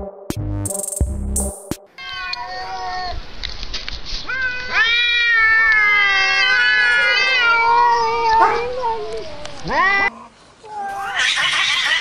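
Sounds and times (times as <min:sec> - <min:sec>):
fighting cats yowling: 0:04.3 - 0:12.0.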